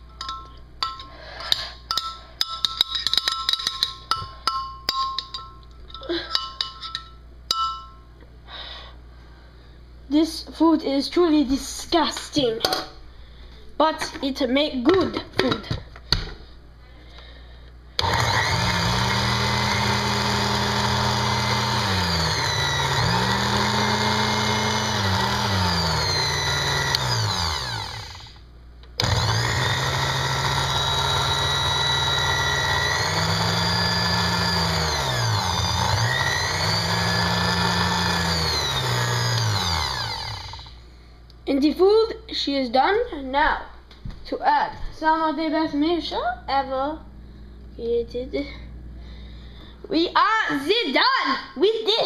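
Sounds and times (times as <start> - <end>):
blender motor running: 18.0 - 40.8.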